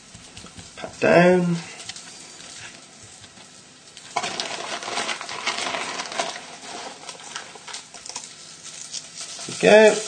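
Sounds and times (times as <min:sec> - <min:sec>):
oil sizzling and crackling: 0:03.5 - 0:10.0.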